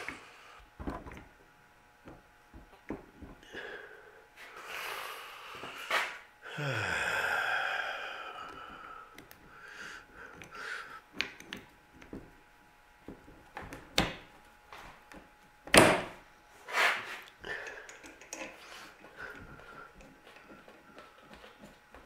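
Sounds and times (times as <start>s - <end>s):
man breathing hard: 3.4s - 11.1s, 17.4s - 20.1s.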